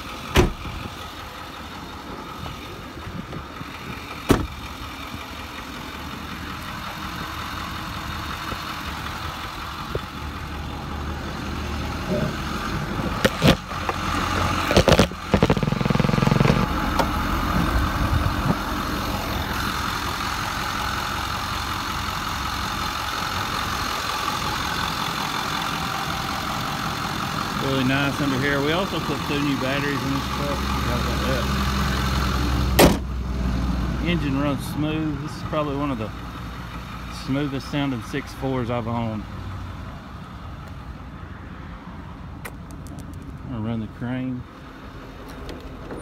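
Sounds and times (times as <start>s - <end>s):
diesel engine idling: 0.0s - 46.0s
truck door shutting: 0.3s - 0.8s, 4.3s - 4.6s, 32.8s - 33.1s
hood clicks and knocks: 13.2s - 14.0s.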